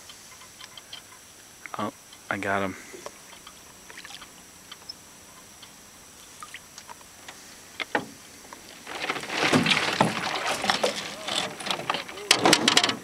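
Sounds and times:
fish splashing at water surface: 0:09.2 - 0:11.4.

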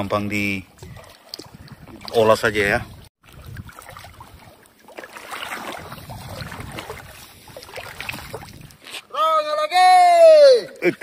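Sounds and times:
seawater splashing around legs: 0:03.2 - 0:09.1.

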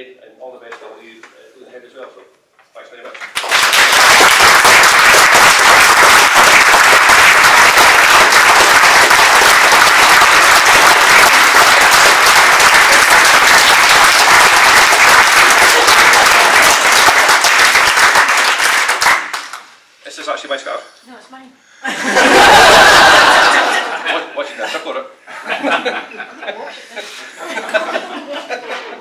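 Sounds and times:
small audience applauding: 0:03.0 - 0:19.8, 0:22.2 - 0:24.0.

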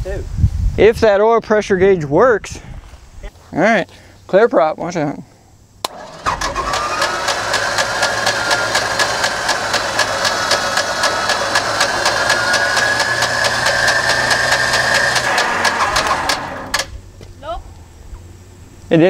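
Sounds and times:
engine starter whine: 0:05.8 - 0:17.0
engine cranking beat: 0:05.9 - 0:17.0.

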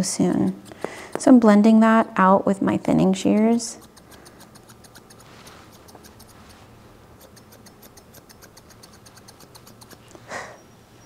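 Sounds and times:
shears snipping hair: 0:00.0 - 0:01.4, 0:02.9 - 0:06.6, 0:07.2 - 0:10.2.

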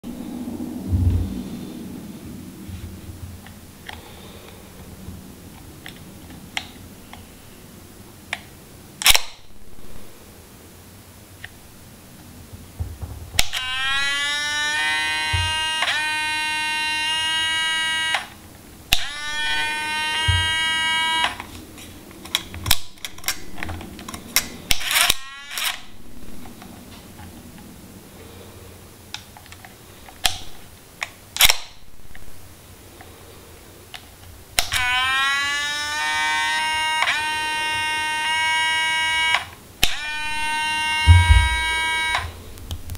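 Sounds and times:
sharp mechanical clicks: 0:09.0 - 0:09.4, 0:22.2 - 0:25.9, 0:30.2 - 0:32.2
camera motor buzzing whir: 0:13.4 - 0:18.3, 0:18.9 - 0:21.4, 0:24.7 - 0:26.0, 0:34.7 - 0:42.4.

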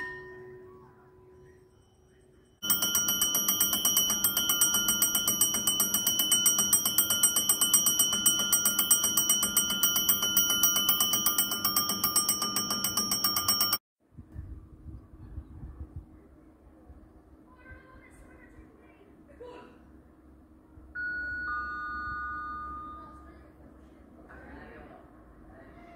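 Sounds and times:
electric warning bell ringing: 0:00.0 - 0:00.8, 0:01.5 - 0:13.8, 0:21.0 - 0:23.2.

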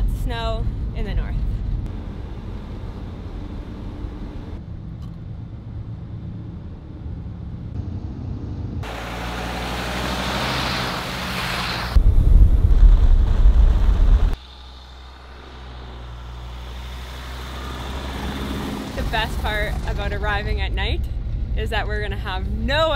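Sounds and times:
van engine driving: 0:00.0 - 0:12.0, 0:13.3 - 0:22.9
tyre road noise: 0:00.0 - 0:22.9
loud low rumble: 0:12.0 - 0:14.4.

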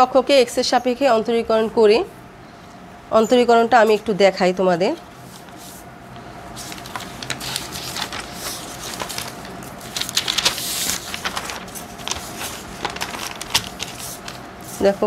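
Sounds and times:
faint steady hum: 0:00.0 - 0:15.0
paper rustling: 0:05.3 - 0:15.0.

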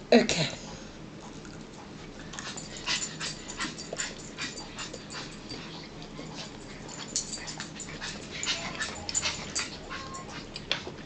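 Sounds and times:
dog panting and whimpering: 0:02.4 - 0:11.0.

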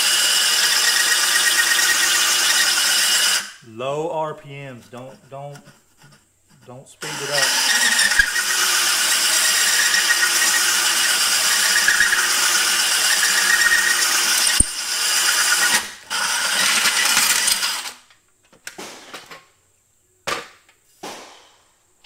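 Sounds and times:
hole saw grinding through tile: 0:00.0 - 0:03.5, 0:04.9 - 0:17.9.

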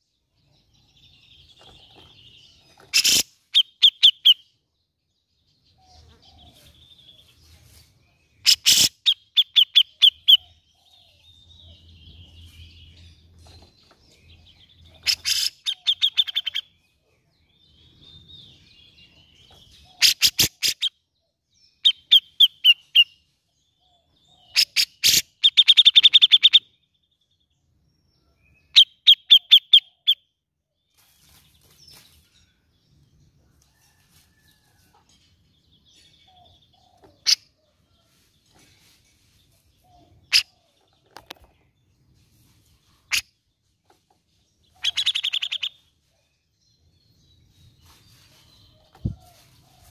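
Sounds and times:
soft bird chattering: 0:02.8 - 0:04.4, 0:08.4 - 0:10.5, 0:14.8 - 0:16.7, 0:19.8 - 0:20.9, 0:44.7 - 0:45.8.

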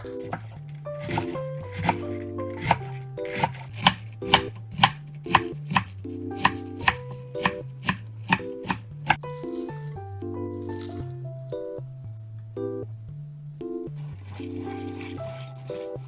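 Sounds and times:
light background music: 0:00.0 - 0:16.0
knife chopping on wooden board: 0:00.2 - 0:02.0, 0:02.6 - 0:09.2.

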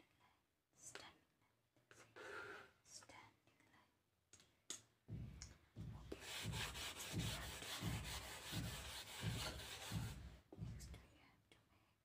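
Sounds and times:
eraser rubbing on blackboard: 0:06.1 - 0:10.4.

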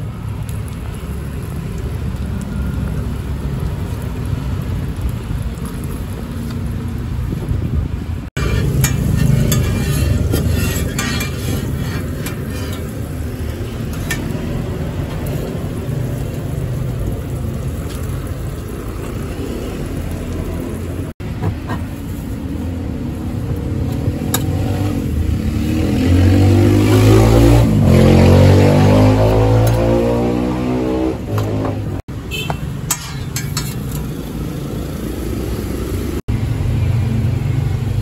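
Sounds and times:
street traffic rumbling: 0:00.0 - 0:38.0
vehicle engine revving and passing: 0:23.8 - 0:32.0.

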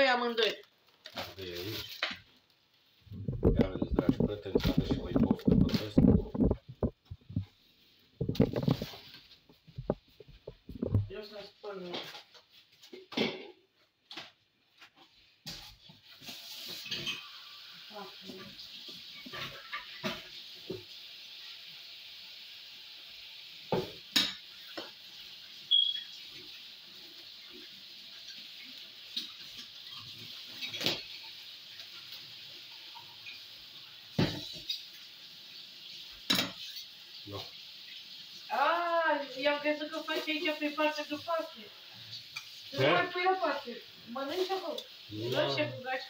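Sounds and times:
water running into a steel sink: 0:03.1 - 0:07.4, 0:16.1 - 0:46.0.

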